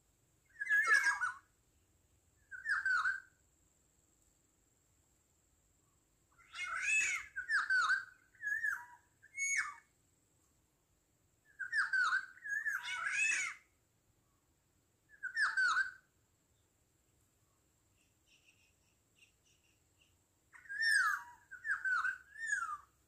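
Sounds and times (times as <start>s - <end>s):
orioles calling: 0.4s - 1.5s, 6.4s - 9.9s, 11.5s - 13.7s, 17.9s - 23.0s.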